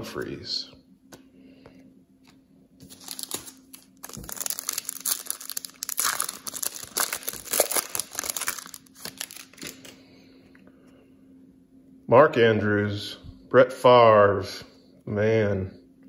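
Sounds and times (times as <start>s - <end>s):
foil wrapper tearing and crinkling: 2.8s - 10.0s.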